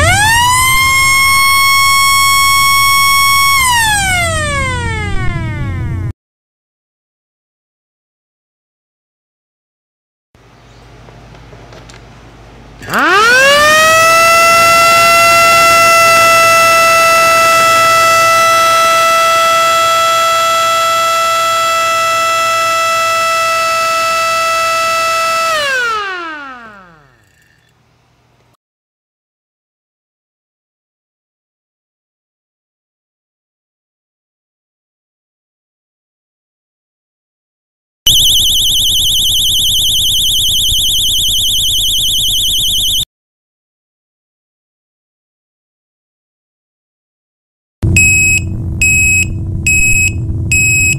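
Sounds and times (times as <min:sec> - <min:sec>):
mechanical siren steady high tone: 0:00.0 - 0:06.1, 0:12.8 - 0:27.7, 0:38.1 - 0:43.1, 0:47.8 - 0:50.9.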